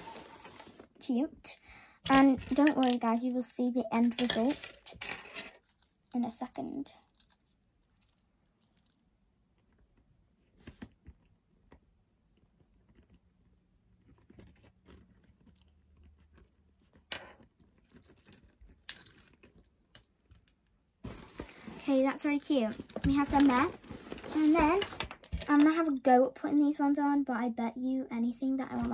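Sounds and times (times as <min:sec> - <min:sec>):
keychains clicking and rustling: 0:07.0 - 0:09.0.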